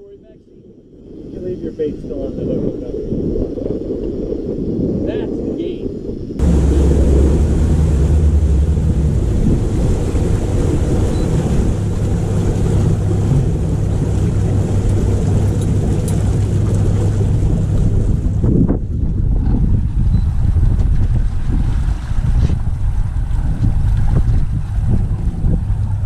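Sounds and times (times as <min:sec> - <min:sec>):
wind on microphone: 0:00.0 - 0:26.0
water rushing past hull: 0:00.8 - 0:26.0
boat engine running: 0:06.4 - 0:26.0.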